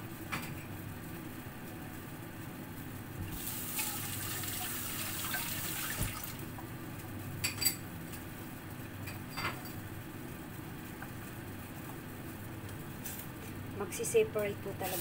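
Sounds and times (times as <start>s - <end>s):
broth bubbling in pot: 3.0s - 7.0s.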